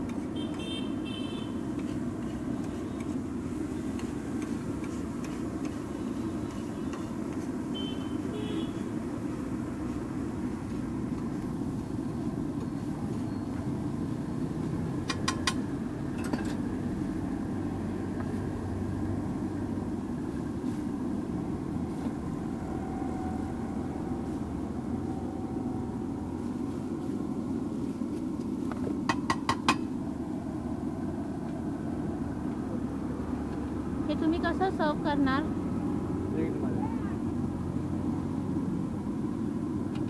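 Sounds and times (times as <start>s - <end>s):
spatula tapping metal griddle: 1.7s - 3.2s, 3.8s - 5.8s, 6.4s - 7.5s, 15.0s - 15.6s.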